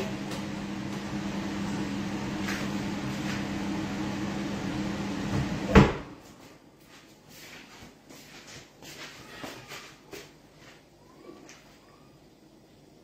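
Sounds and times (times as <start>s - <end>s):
kitchen appliance hum: 0.0s - 13.0s
cupboard door closing: 5.4s - 6.1s.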